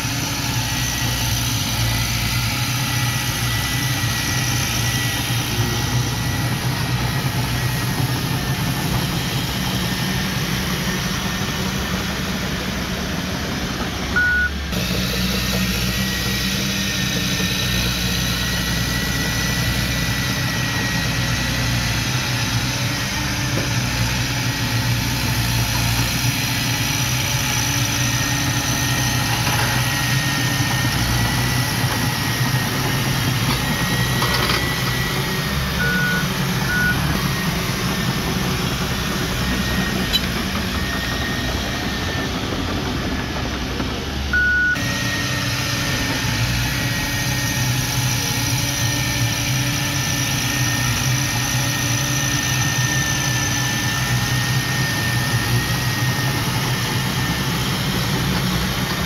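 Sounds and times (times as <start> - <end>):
bulldozer diesel engine running: 0.0 - 59.0
short beeps: 14.2 - 14.7, 35.8 - 37.2, 44.4 - 44.8.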